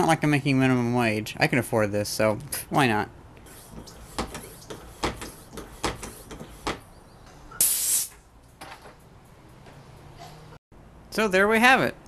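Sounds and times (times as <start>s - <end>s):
air hiss: 7.6s - 8.1s.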